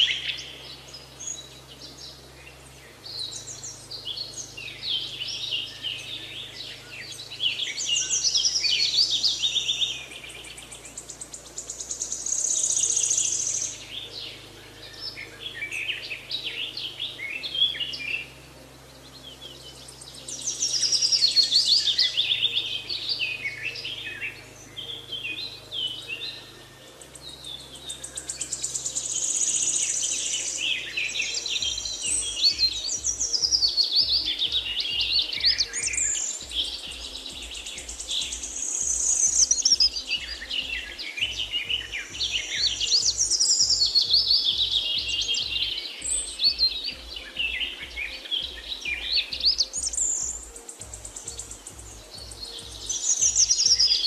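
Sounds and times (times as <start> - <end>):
birds chirping and singing: 0.0 - 54.0.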